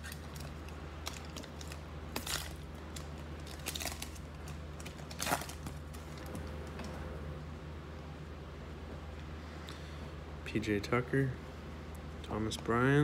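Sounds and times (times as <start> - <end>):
wrapper tearing and crinkling: 0.0 - 5.8.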